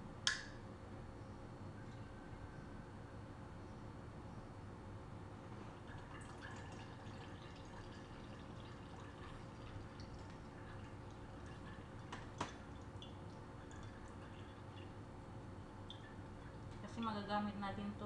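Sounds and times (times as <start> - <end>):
sharp click: 0.2 - 0.6
faint drips: 5.8 - 15.0, 15.6 - 17.0.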